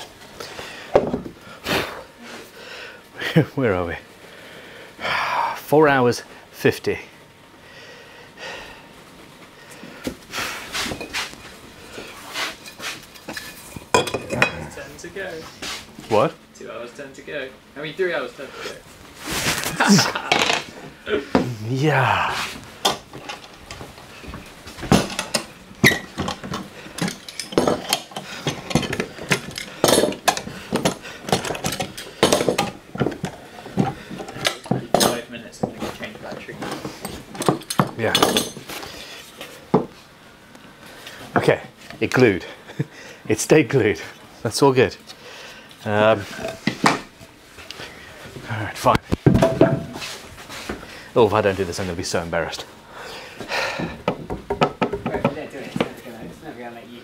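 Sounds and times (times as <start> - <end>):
man breathing and sniffing: 7.6 - 13.1, 20.8 - 22.8, 26.5 - 32.3, 38.7 - 40.1, 52.8 - 54.1
rustling: 18.8 - 20.9.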